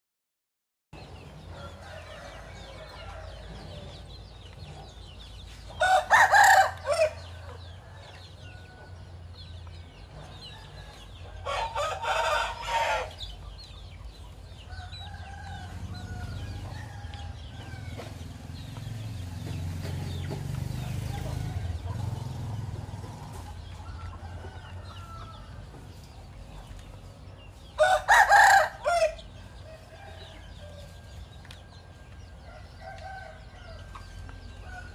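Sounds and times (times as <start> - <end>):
rooster crowing: 5.8 - 9.0, 10.6 - 13.2, 27.8 - 31.0.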